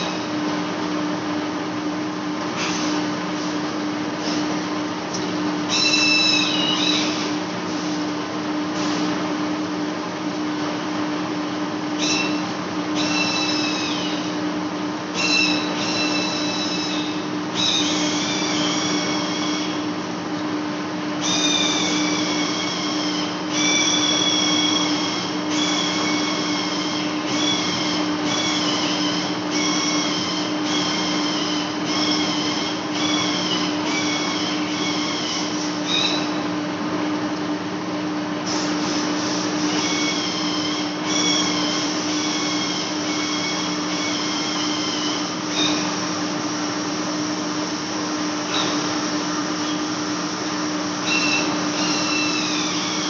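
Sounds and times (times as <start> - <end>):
high-pitched metal cutting squeal: 5.7 - 7.3, 12.0 - 14.3, 15.1 - 19.8, 21.2 - 36.4, 39.4 - 46.2, 50.9 - 53.0.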